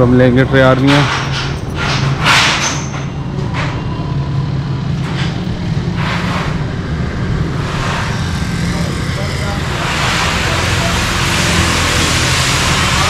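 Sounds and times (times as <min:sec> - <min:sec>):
vehicles passing by: 0:00.0 - 0:13.0
low engine rumble: 0:03.0 - 0:13.0.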